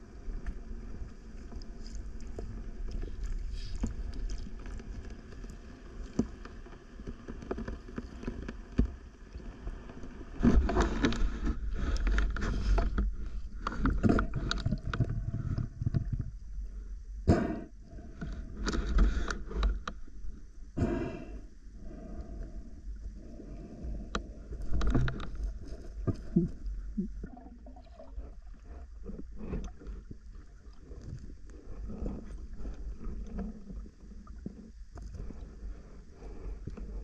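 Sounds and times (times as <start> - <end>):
muffled underwater water noise: 0.0 - 37.0.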